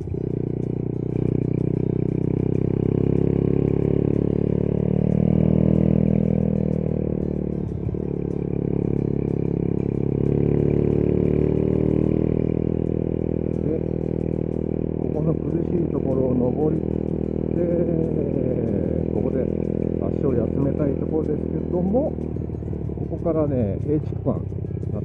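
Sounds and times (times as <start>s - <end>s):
small motorcycle engine under load: 6.4s - 25.0s.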